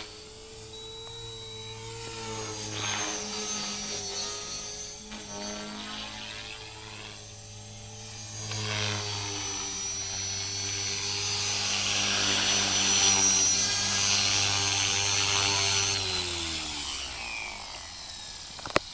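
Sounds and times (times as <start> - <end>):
rc helicopter rotors whining: 0.0 - 18.9.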